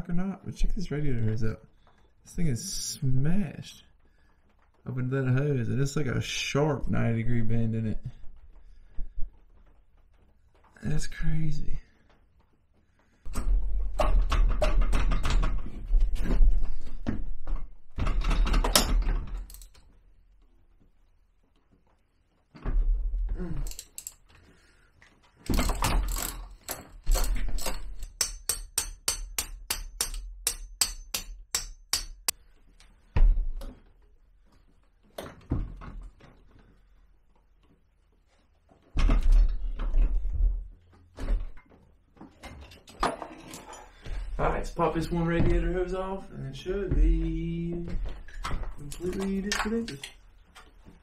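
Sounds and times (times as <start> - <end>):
tools knocking: 25.5 - 32.4.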